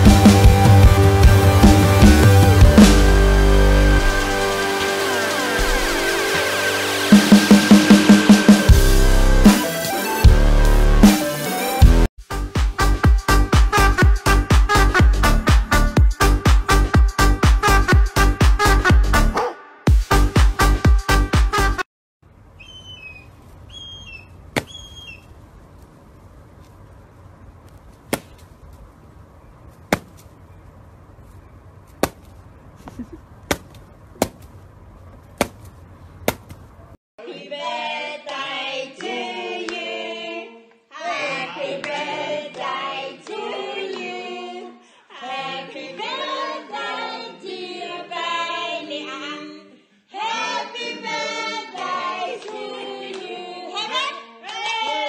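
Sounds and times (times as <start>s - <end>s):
small birds chirping: 22.5s - 25.9s, 27.6s - 36.9s
bird kicking a snake: 24.5s - 24.9s, 27.6s - 28.9s, 29.7s - 30.4s, 31.9s - 32.4s, 33.5s - 36.7s
group of people singing: 37.2s - 54.1s.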